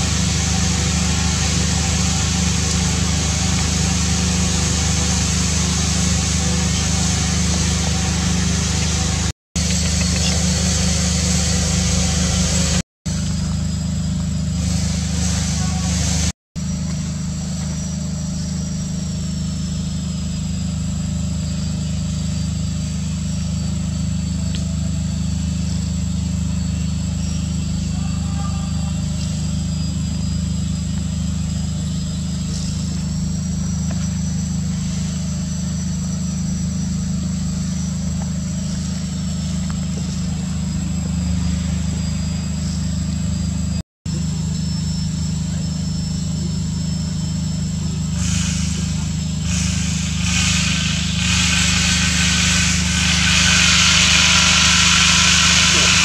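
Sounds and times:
hiss: 0.0 - 13.4, 14.4 - 16.4, 47.9 - 56.0
engine humming: 0.0 - 56.0
high whine: 0.0 - 56.0.

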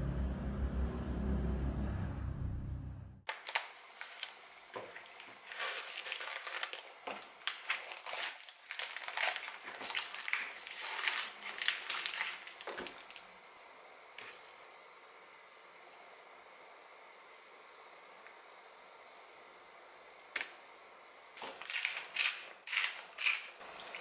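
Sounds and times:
plastic packaging crinkling: 3.3 - 13.3, 21.4 - 24.0.

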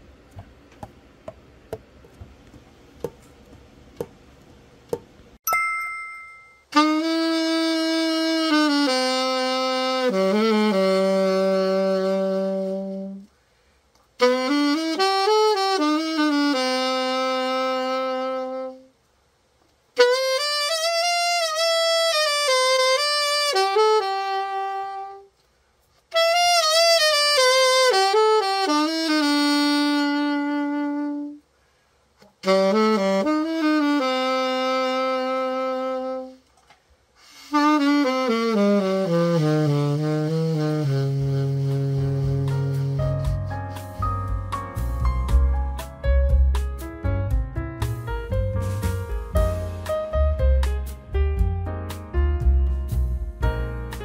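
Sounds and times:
alto saxophone melodic phrases: 6.7 - 13.3, 14.2 - 19.0, 20.0 - 25.4, 26.1 - 31.5, 32.2 - 36.5, 37.2 - 45.9, 48.3 - 51.6.

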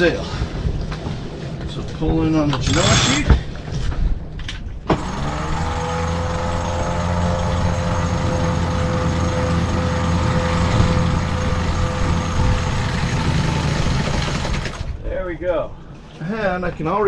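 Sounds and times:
low hum: 2.5 - 16.2
electric winch motor running: 4.9 - 14.9.

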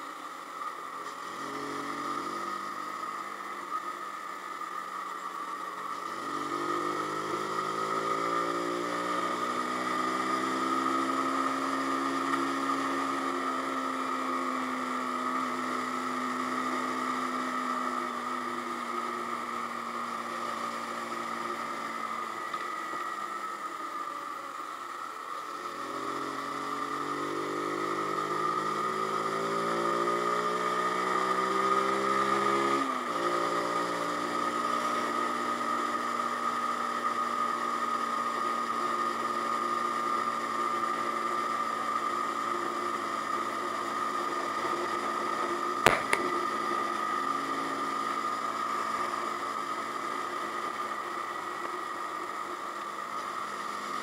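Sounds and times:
motorcycle engine accelerating: 1.0 - 4.4, 5.0 - 54.0
sharp click: 45.9 - 46.3.

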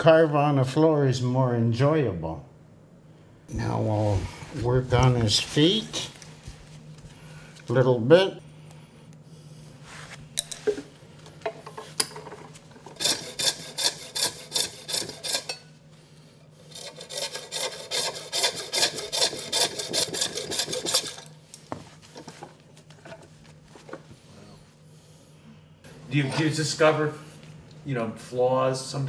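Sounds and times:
coping saw rasping: 12.9 - 15.6, 16.6 - 21.3.

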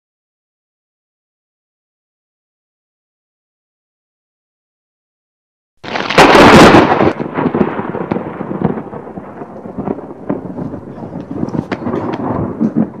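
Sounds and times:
thunder clap and rumble: 5.9 - 13.0.

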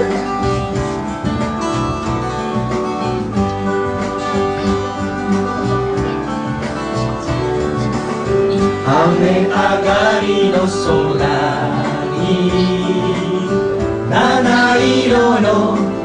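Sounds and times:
guitar-led backing music: 0.0 - 16.0
group singing into microphones: 8.6 - 16.0.

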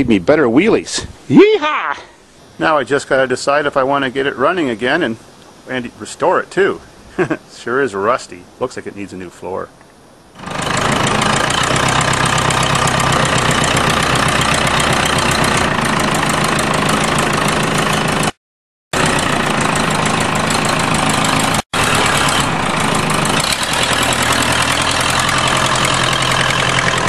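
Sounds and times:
tractor engine running: 10.4 - 27.0.

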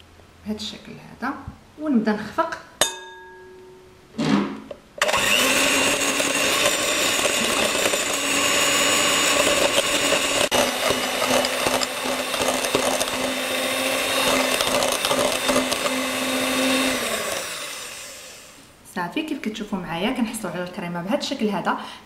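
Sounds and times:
electric hand mixer whipping cream: 5.0 - 18.6.

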